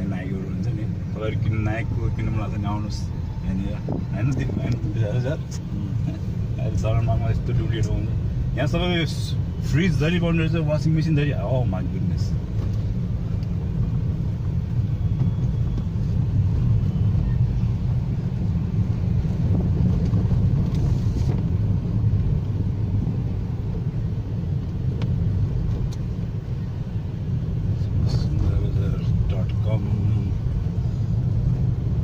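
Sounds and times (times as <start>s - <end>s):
car engine and tyres rumbling: 0.0s - 32.0s.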